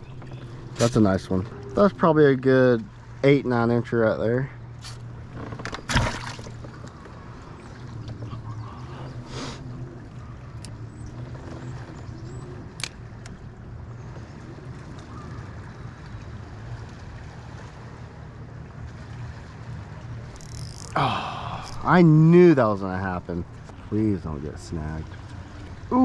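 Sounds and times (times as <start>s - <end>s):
low mechanical hum: 0.0s - 26.0s.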